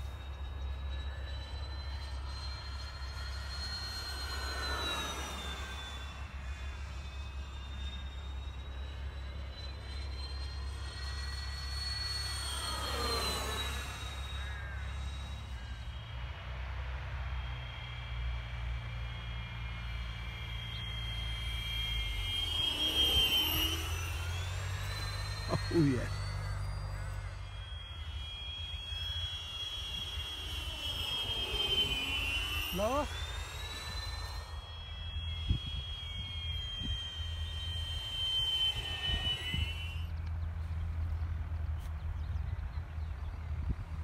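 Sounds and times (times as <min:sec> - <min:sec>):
model jet fan whine: 0:00.0 - 0:44.0
whistles on model jet: 0:00.0 - 0:44.0
wind rumbling on microphone: 0:29.7 - 0:44.0.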